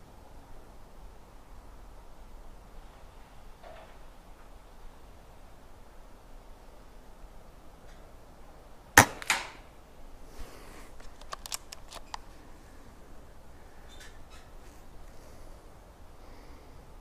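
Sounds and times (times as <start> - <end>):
air rifle shot: 9.0 - 9.7
quieter crack: 9.0 - 9.7
rifle bolt clicks: 11.0 - 12.2.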